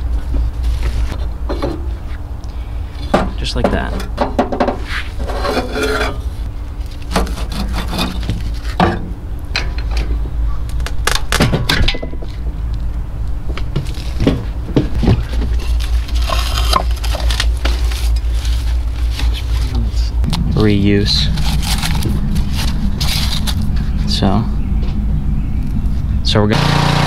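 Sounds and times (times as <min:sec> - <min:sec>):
metal knocks and clanks: 0:03.0 - 0:06.2
low rumble: 0:08.1 - 0:26.6.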